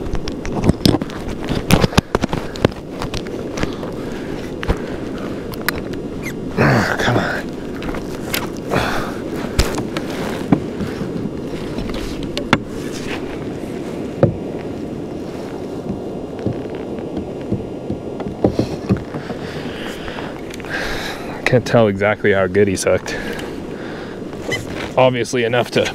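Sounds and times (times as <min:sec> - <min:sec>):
wind rushing: 0:00.0 - 0:25.1
choppy water: 0:00.0 - 0:25.9
sharp knocks and clicks: 0:11.8 - 0:12.7, 0:14.2 - 0:14.4, 0:15.9 - 0:19.7.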